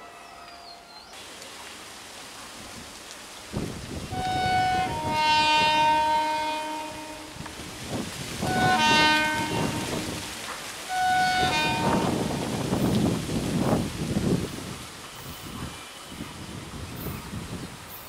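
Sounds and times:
train running rumble: 0:03.5 - 0:18.0
train horn blasts: 0:04.0 - 0:07.7, 0:08.4 - 0:13.0.

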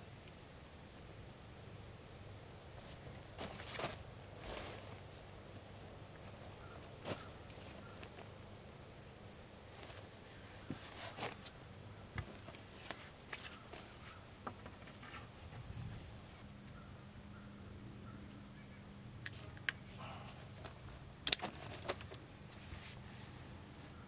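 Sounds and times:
sharp metallic clicks: 0:21.2 - 0:22.1.

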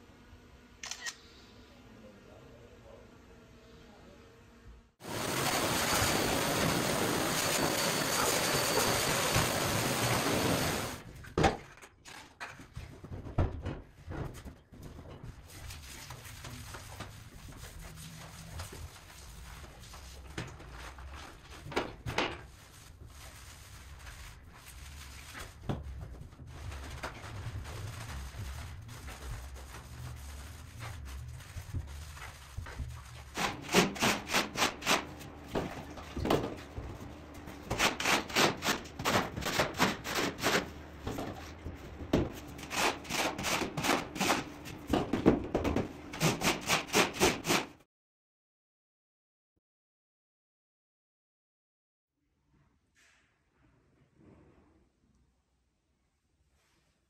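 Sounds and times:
brush scrubbing plaster walls: 0:15.2 - 0:44.9.

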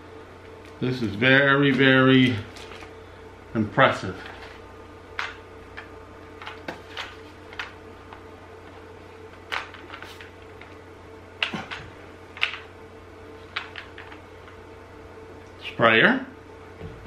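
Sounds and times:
steady low hum: 0:00.0 - 0:17.0
packaging rustling and clicking: 0:02.2 - 0:03.0.

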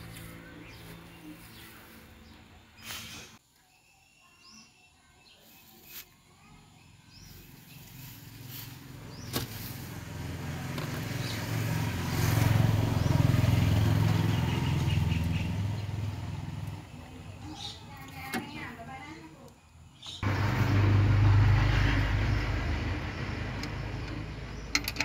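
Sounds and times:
vehicle passing by: 0:00.0 - 0:03.4, 0:07.2 - 0:17.7, 0:20.2 - 0:24.8.

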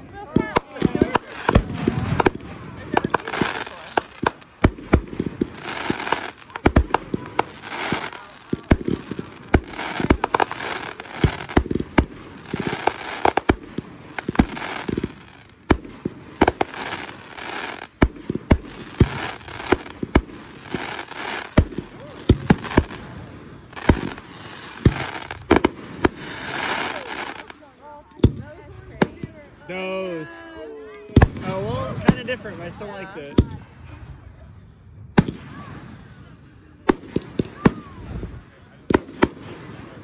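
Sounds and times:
firework shells bursting with bangs: 0:00.4 - 0:27.5
fireworks hissing: 0:00.4 - 0:27.6.

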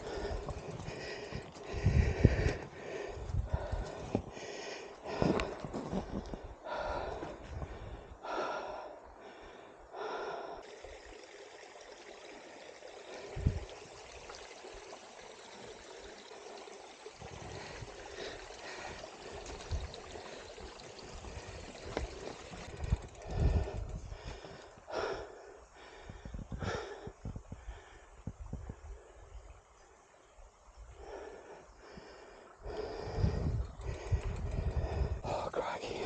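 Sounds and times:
person breathing hard: 0:00.0 - 0:10.8, 0:17.2 - 0:29.4, 0:30.9 - 0:36.0.

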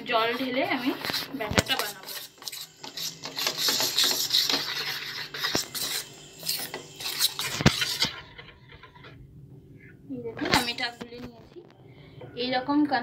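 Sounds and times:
metal spoon stirring batter in bowl: 0:00.0 - 0:09.1, 0:10.4 - 0:11.1.

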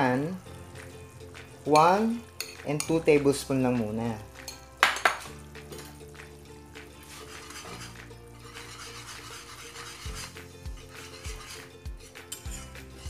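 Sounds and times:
background music with held notes: 0:00.0 - 0:13.0
spoon stirring sauce in a pan: 0:00.8 - 0:03.5, 0:06.8 - 0:13.0.

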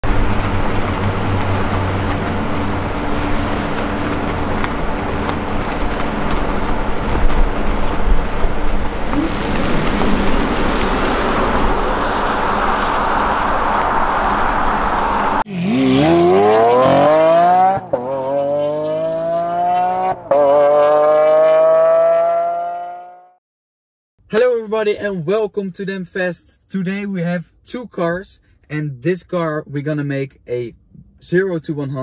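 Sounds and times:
tyre and road noise: 0:00.0 - 0:23.2
engine revving hard: 0:15.1 - 0:23.3.

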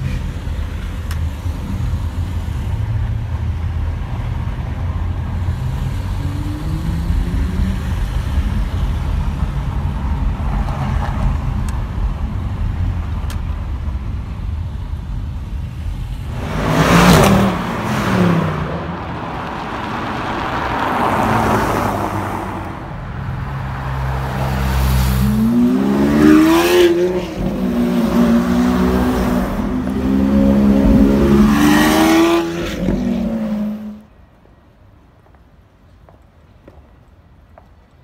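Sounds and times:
sports car revving and accelerating: 0:05.5 - 0:08.9, 0:16.3 - 0:22.5, 0:25.0 - 0:34.0
passing car engine: 0:16.2 - 0:34.0.

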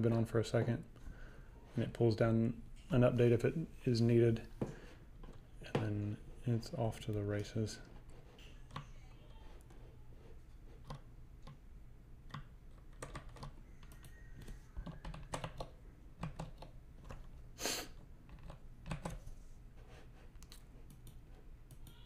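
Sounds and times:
low steady hum: 0:00.0 - 0:22.0
typing on a keyboard: 0:12.3 - 0:17.4, 0:18.3 - 0:19.2.

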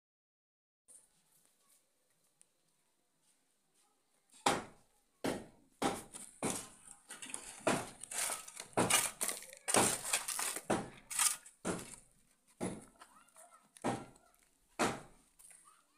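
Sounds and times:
shovel scraping soil and stones: 0:07.1 - 0:12.0.

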